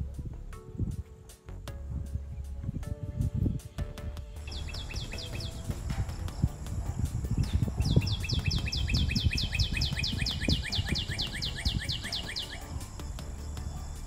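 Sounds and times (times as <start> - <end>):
wind buffeting microphone: 0.0 - 14.0
bird calling rapid high notes: 7.4 - 14.0.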